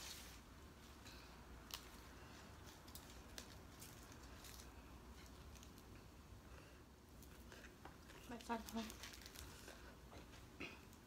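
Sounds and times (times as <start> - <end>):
faint rustling of leaves: 0.0 - 6.0.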